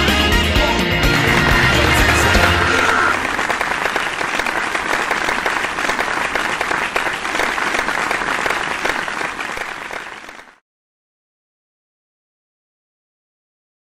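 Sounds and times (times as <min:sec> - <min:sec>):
audience applauding: 0:01.0 - 0:10.6.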